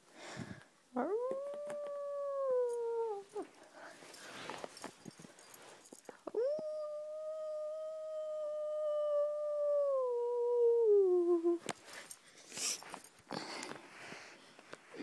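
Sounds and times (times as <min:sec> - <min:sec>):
wolf howl: 0:01.0 - 0:03.4
rustling: 0:01.3 - 0:06.3, 0:11.6 - 0:15.0.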